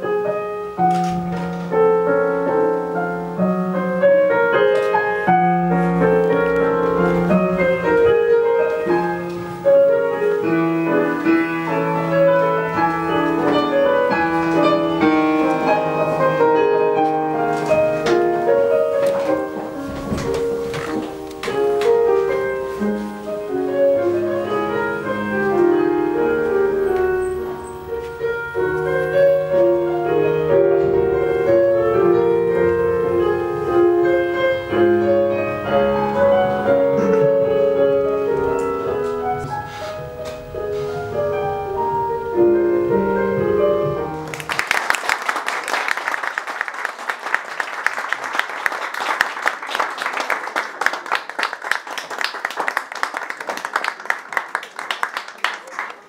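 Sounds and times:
classical piano piece: 0:00.0 - 0:56.0
audience applauding: 0:44.2 - 0:56.0.

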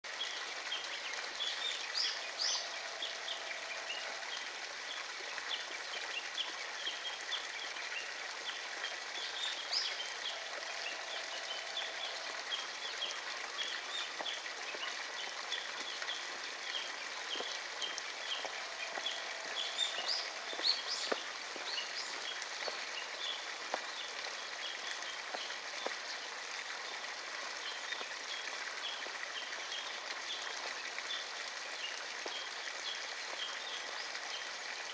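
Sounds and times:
light rain pattering: 0:00.0 - 0:34.9
birds chirping: 0:09.2 - 0:26.2.

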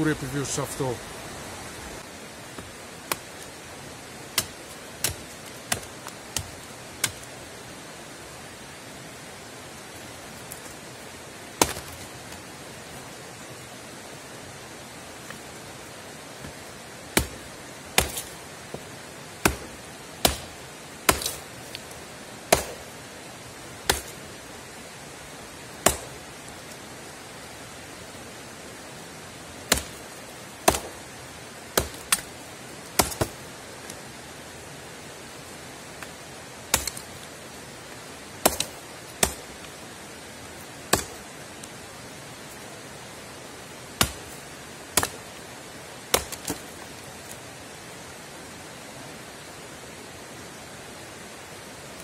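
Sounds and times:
axe chopping branch: 0:02.5 - 0:03.5, 0:04.3 - 0:07.3, 0:11.6 - 0:12.4, 0:16.4 - 0:22.9, 0:23.8 - 0:24.2, 0:25.8 - 0:26.3, 0:29.7 - 0:31.0, 0:31.7 - 0:32.3, 0:32.9 - 0:33.4, 0:36.7 - 0:37.2, 0:38.4 - 0:39.5, 0:40.9 - 0:41.3, 0:44.0 - 0:45.3, 0:46.1 - 0:46.8.

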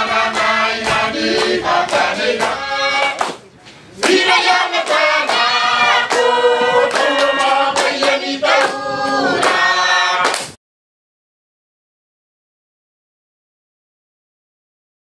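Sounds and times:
choir singing: 0:00.0 - 0:03.4, 0:04.0 - 0:10.4
hand claps: 0:00.0 - 0:10.6.

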